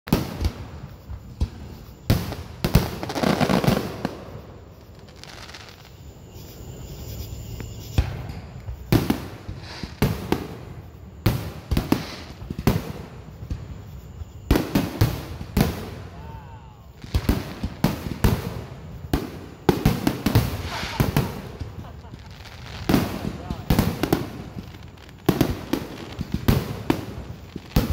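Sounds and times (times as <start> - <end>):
fireworks bursting: 0.1 - 27.9.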